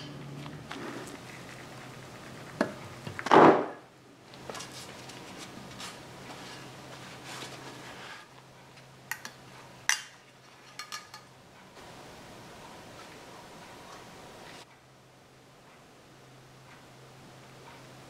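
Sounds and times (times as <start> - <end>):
metal clinks and knocks: 9.1 - 11.4.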